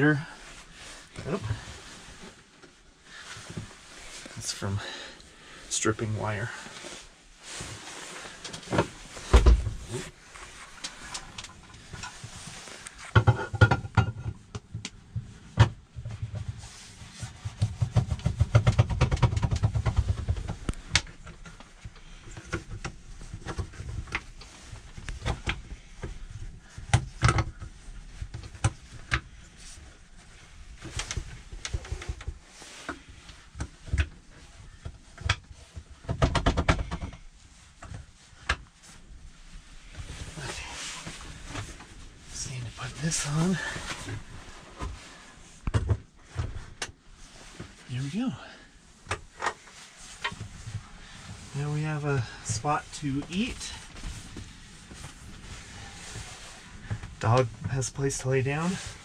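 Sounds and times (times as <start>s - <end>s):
knocks clicks and rattles of table: 13.2s - 14.9s, 17.6s - 21.1s.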